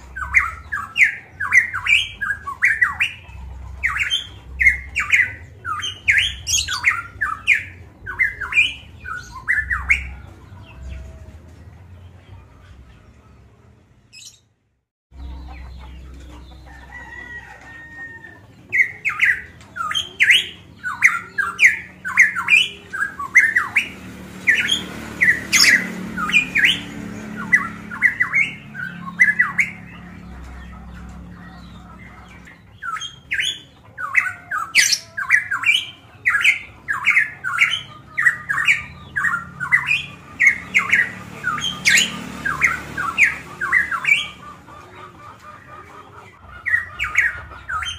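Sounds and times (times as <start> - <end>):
bird singing sharp rapid notes: 0.0 - 10.6, 18.7 - 30.5, 31.1 - 44.5.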